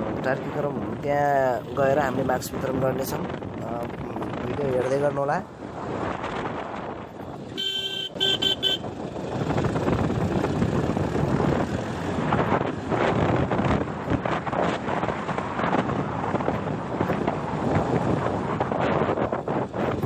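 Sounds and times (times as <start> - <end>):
vehicle driving on rough dirt road: 0.0 - 20.0
vehicle horn honking: 7.5 - 8.9.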